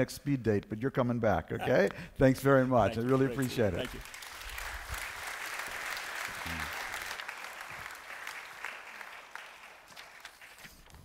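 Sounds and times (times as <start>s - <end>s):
audience applauding: 2.8s - 10.8s.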